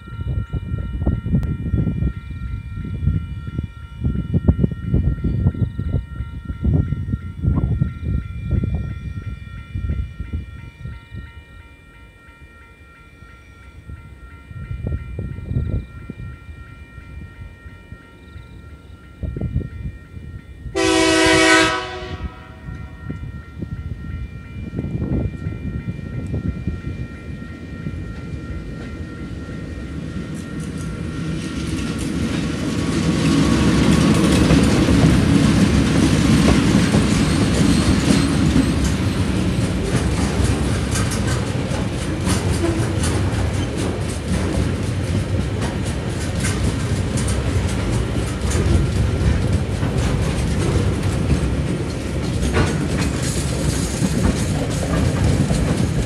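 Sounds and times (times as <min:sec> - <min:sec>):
locomotive rumble: 0:17.2 - 0:56.0
locomotive horn blast: 0:20.7 - 0:23.0.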